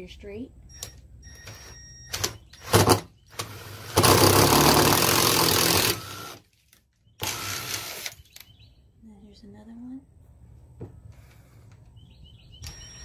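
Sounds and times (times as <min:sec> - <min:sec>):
impact driver drilling wood: 0:01.5 - 0:06.5, 0:07.2 - 0:08.2.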